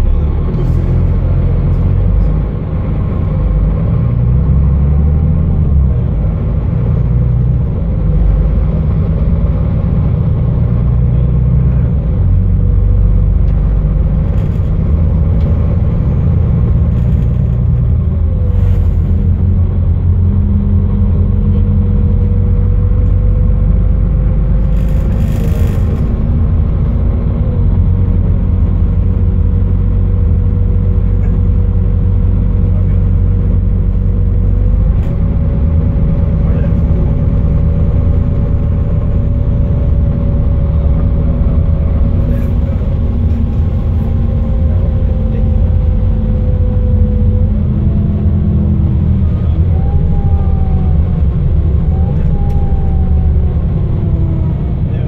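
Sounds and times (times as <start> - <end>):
bus engine low rumble: 0.0 - 55.0
high whine: 32.6 - 55.0.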